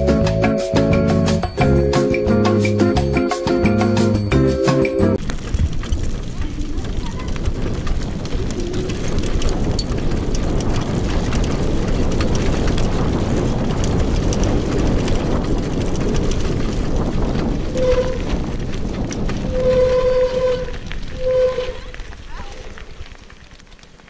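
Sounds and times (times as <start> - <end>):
wind rushing over microphone: 5.2 - 23.3
tyres crunching on dirt: 5.2 - 24.0
wheelchair frame rattling: 5.2 - 24.0
short squeals: 19.5 - 22.7.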